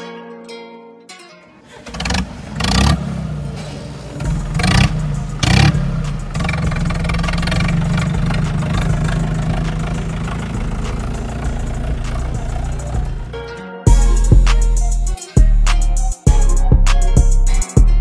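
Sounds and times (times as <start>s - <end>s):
tractor diesel engine revving: 1.6s - 14.4s.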